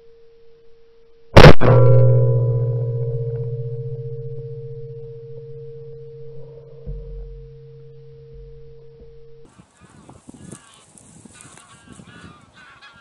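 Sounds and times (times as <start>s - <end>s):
dull bump: 3.0s - 9.5s.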